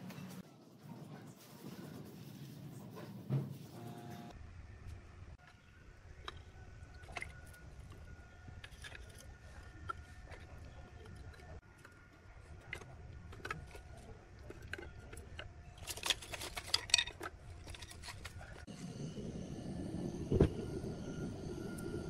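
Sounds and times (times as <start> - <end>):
wooden sticks clacking: 14.4 - 18.6.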